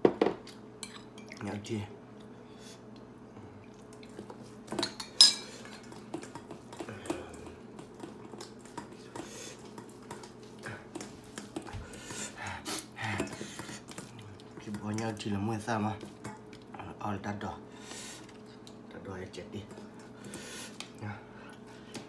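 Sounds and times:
spoons clinking on steel bowl: 0:04.8 - 0:05.5.

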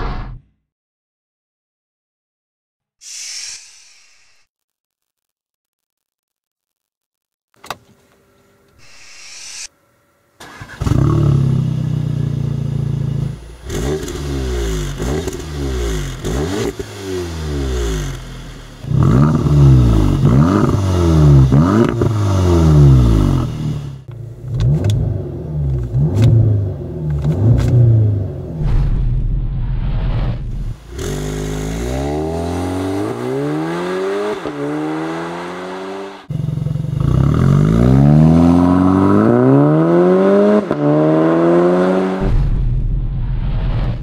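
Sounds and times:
car engine starting and revving: 0:10.4 - 0:44.0.

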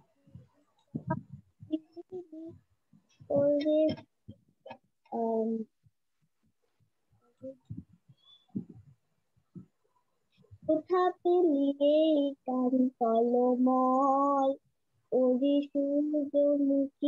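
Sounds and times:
child singing: 0:01.7 - 0:02.6, 0:03.2 - 0:04.1, 0:05.1 - 0:05.7, 0:10.6 - 0:17.0.

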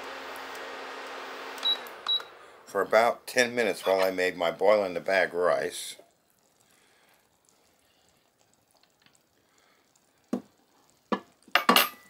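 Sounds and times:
soft bubbling of simmering pot: 0:00.4 - 0:12.0
glass lid and utensils clacking: 0:11.2 - 0:12.0.

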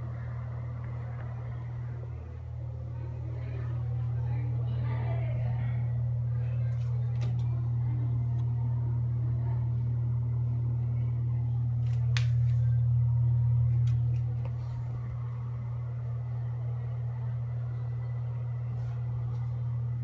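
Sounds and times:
exhaust fan motor hum: 0:00.0 - 0:20.0.

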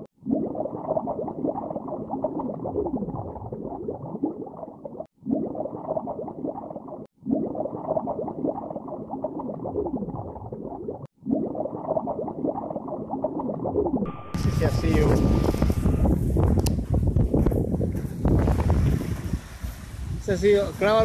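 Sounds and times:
muffled underwater bubbling: 0:00.0 - 0:16.2.

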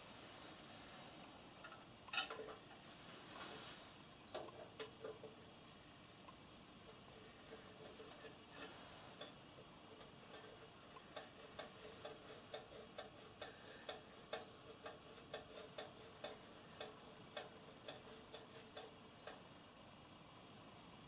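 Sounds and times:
faint light clicks of nut turning: 0:10.0 - 0:19.4.

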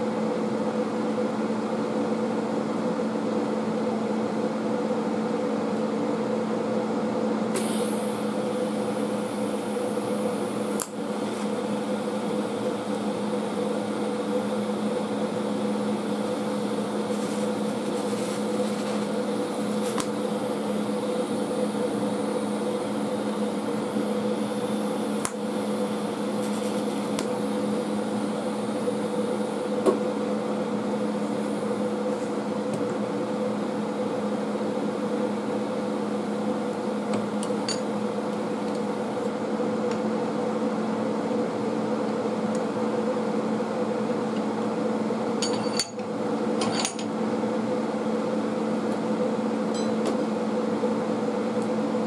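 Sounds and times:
welding machine hum: 0:00.0 - 0:52.0
welding arc hiss: 0:07.6 - 0:39.4.

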